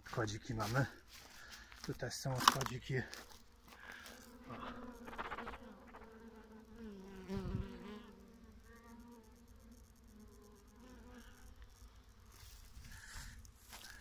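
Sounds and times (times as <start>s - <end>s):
honeybees buzzing: 2.8s - 14.0s.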